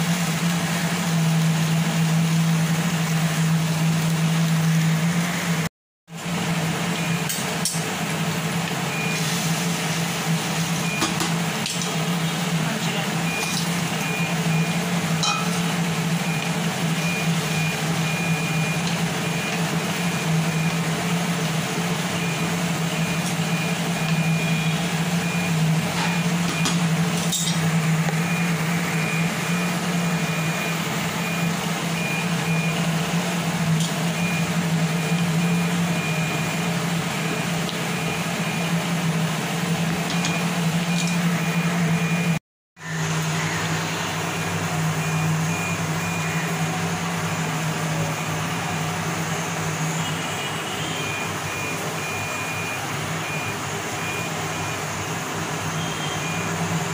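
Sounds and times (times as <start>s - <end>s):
gas stove hum: 0.0s - 56.9s
sauce bubbling in wok: 13.2s - 47.9s
high-pitched beep: 13.3s - 16.4s.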